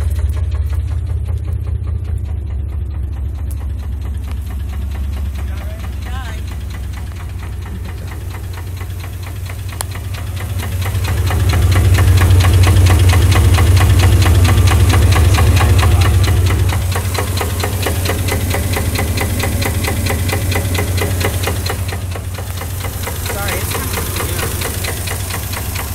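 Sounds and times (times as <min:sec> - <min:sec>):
engine idling with rapid knock: 0:00.0 - 0:25.9.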